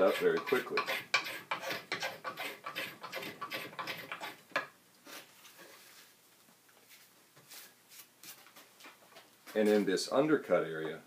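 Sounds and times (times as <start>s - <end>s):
knife scraping wood: 0.0s - 4.4s.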